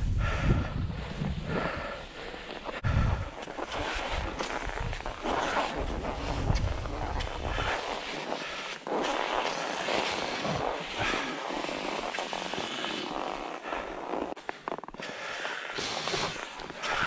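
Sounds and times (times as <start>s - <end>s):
skis scraping over snow: 0.9s - 17.0s.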